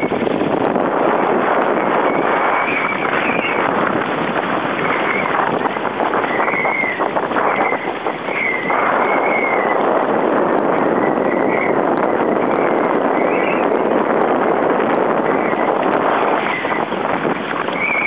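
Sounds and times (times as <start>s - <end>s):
rush of wind and water: 0.0s - 18.0s
water slapping against hull: 0.0s - 18.0s
wavering high whistle: 2.1s - 3.6s, 17.7s - 18.0s.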